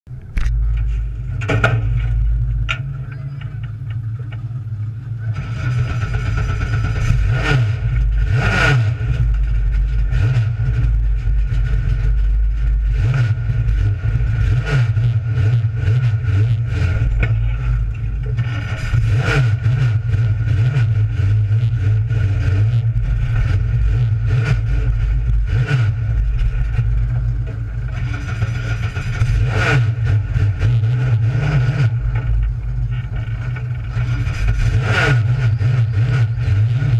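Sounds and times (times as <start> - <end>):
race car engine idling: 0.1 - 36.9
engine revs: 0.2 - 36.9.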